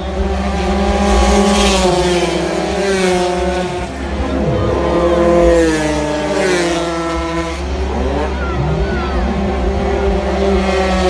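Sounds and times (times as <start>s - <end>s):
racing scooters passing by: 0.0s - 11.0s.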